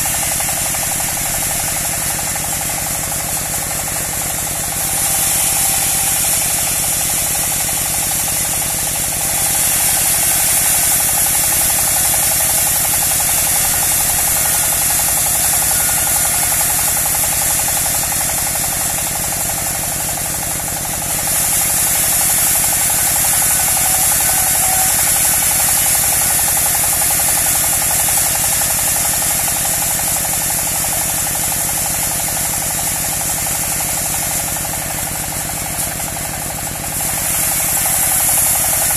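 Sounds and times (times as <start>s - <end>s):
bandsaw blade hissing: 0.0s - 30.0s, 35.6s - 38.9s
sawmill engine humming: 0.0s - 38.9s.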